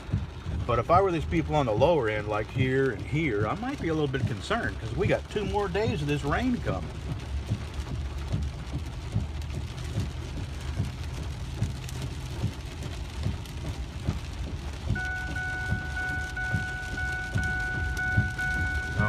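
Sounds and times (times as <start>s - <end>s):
car engine rumble: 0.0s - 19.0s
rain pattering on car windshield: 0.0s - 19.0s
tyres on wet road: 0.0s - 19.0s
seatbelt warning chime beeping: 15.0s - 19.0s.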